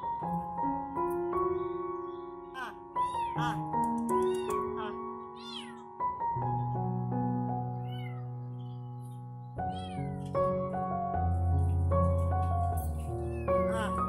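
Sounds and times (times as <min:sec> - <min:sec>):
background music with held notes: 0:00.0 - 0:14.0
kitten meowing: 0:02.6 - 0:05.9, 0:07.7 - 0:08.9, 0:09.6 - 0:10.3, 0:13.0 - 0:14.0.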